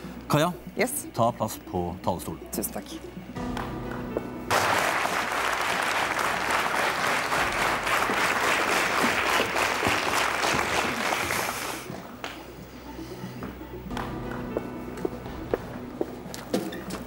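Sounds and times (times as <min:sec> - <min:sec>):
audience applauding: 0:04.5 - 0:11.9.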